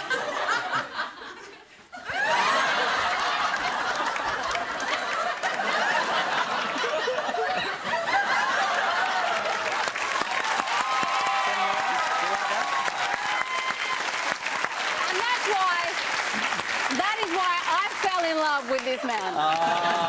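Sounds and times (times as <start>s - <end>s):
studio audience laughing: 0.0s - 10.7s, 19.4s - 20.0s.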